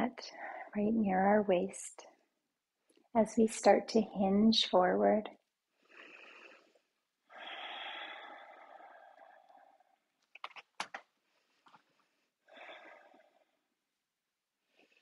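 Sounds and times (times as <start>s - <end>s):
person breathing: 5.7s - 10.1s, 11.2s - 13.7s.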